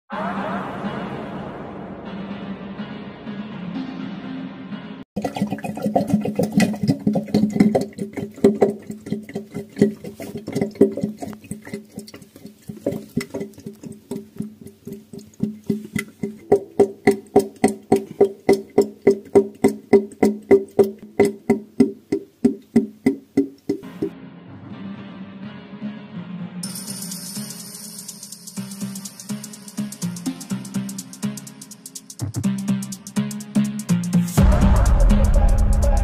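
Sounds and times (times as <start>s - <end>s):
sink drain gurgling: 5.2s - 24.1s.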